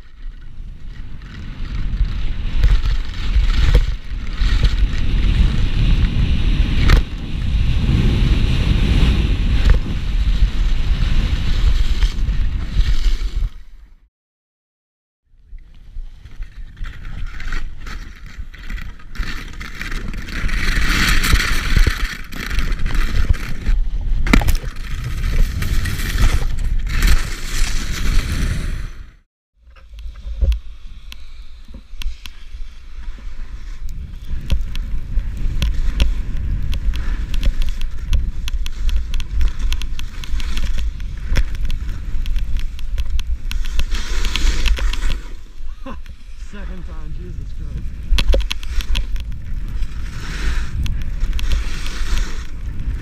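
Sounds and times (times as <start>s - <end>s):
skis scraping over snow: 0.0s - 13.7s, 15.8s - 24.0s, 24.8s - 29.0s, 30.6s - 53.0s
wind buffeting microphone: 0.7s - 12.7s, 33.8s - 53.0s.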